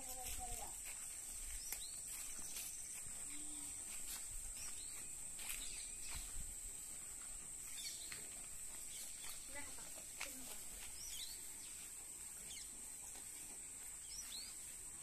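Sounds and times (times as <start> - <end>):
cows chewing grass: 0.0 - 15.0
bird chirps: 4.6 - 6.4, 7.7 - 8.2, 8.8 - 9.8, 10.8 - 11.8.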